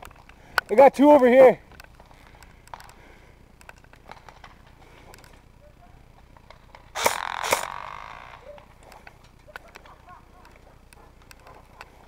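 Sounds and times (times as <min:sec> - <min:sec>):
airsoft gun shots: 0:06.9 - 0:08.4.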